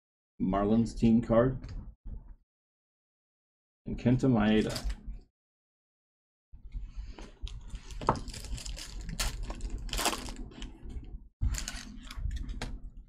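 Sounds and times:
foil wrapper tearing: 8.0s - 10.7s.

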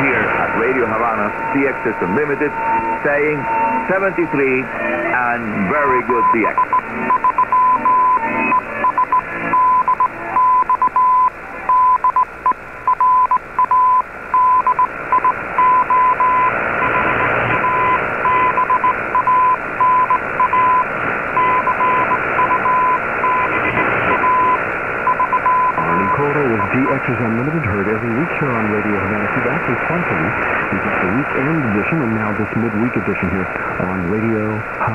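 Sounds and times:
radio static hiss: 0.0s - 34.9s
morse code beep tone: 5.9s - 27.0s.

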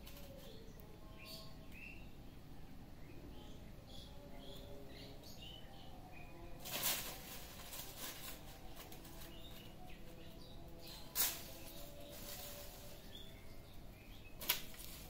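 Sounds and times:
dry leaves crackling and rustling: 0.0s - 0.6s, 6.5s - 15.0s
faint bird chirps: 0.0s - 15.0s.

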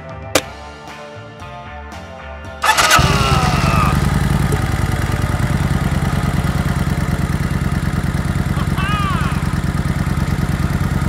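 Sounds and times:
motorcycle kick-start hit: 2.6s - 7.8s
motorcycle engine idling: 2.6s - 11.0s.

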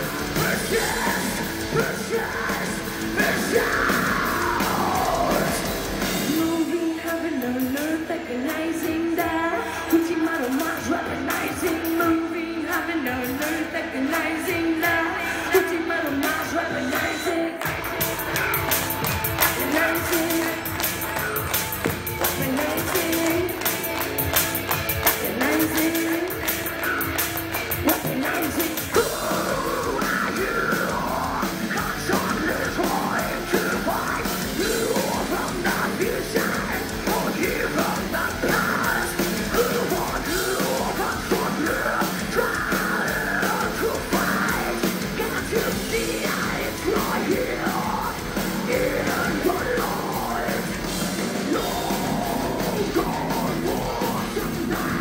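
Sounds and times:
distorted guitars: 0.0s - 55.0s
fast drums: 0.0s - 55.0s
woman singing and yelling: 6.3s - 17.6s, 19.4s - 21.5s, 22.2s - 24.0s, 25.0s - 27.2s.

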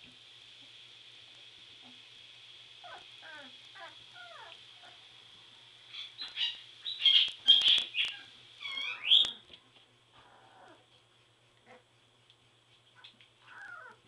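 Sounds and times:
puppies yipping and squealing: 2.8s - 5.0s, 5.9s - 9.5s, 13.0s - 14.0s
puppies whimpering: 7.5s - 9.5s, 10.2s - 10.8s, 13.4s - 14.0s.

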